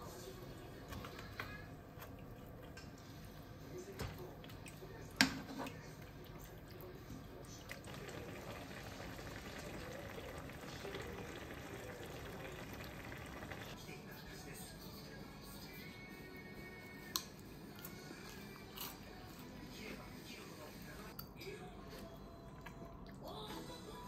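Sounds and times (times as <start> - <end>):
stew simmering and bubbling: 0.0 - 13.8.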